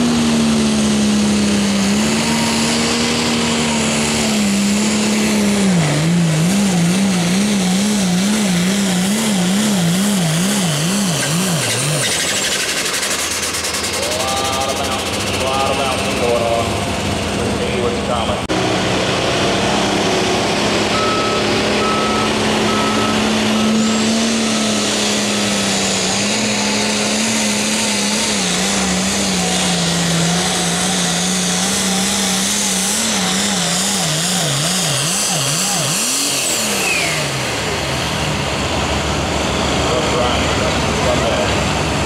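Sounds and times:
diesel engine running flat out: 0:00.0 - 0:42.0
backup alarm beeping: 0:20.9 - 0:24.0.

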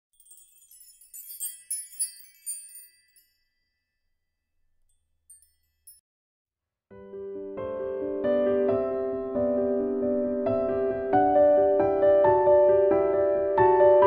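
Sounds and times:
high bell-like chime tinkling: 0:00.1 - 0:06.0.

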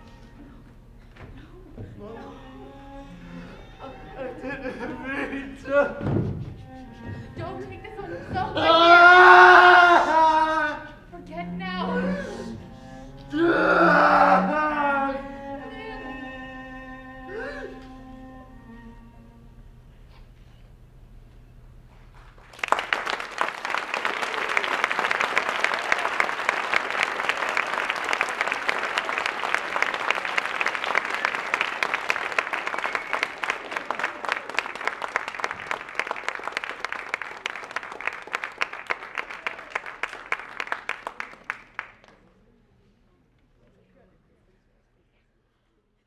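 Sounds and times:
audience applauding: 0:22.4 - 0:42.3.

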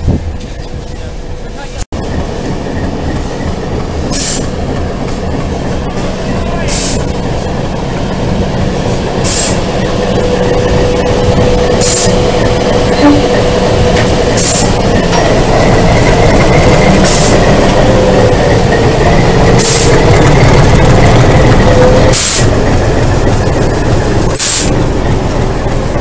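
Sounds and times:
diesel locomotive engine drone: 0:00.0 - 0:26.0.

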